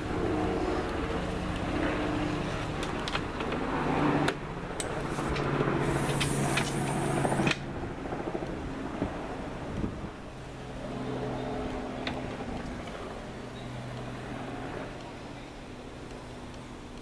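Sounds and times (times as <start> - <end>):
low engine hum: 0.0 - 17.0
rushing hiss: 5.0 - 7.6.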